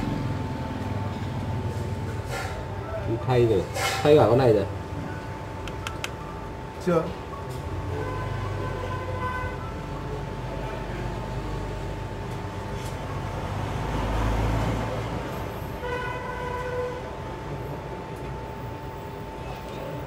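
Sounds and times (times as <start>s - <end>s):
vehicle rumble: 0.0s - 3.0s.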